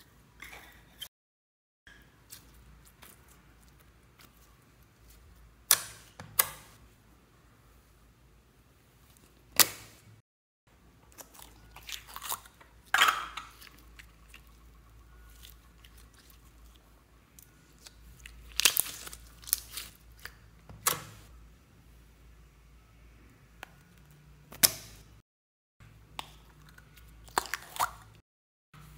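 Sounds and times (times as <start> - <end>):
slime squelching: 2.0 - 6.8, 11.1 - 21.3, 26.1 - 28.2.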